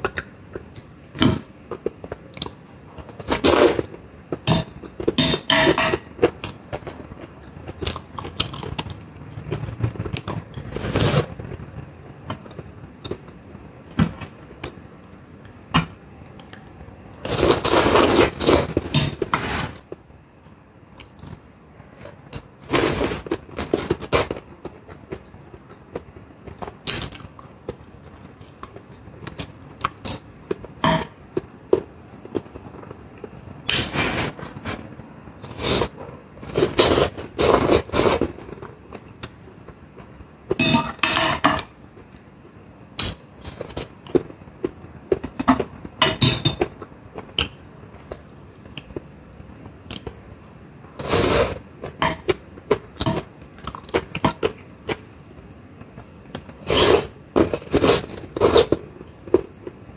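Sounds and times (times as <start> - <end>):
chewing vegetables: 6.2 - 13.6.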